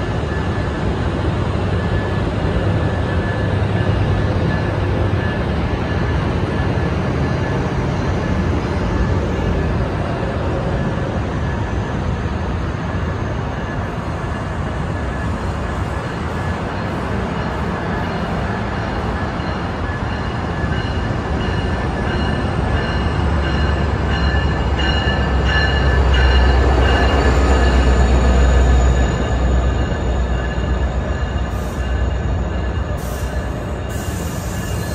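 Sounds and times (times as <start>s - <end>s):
train rumble: 0.0s - 34.9s
high brake squeal: 27.4s - 34.9s.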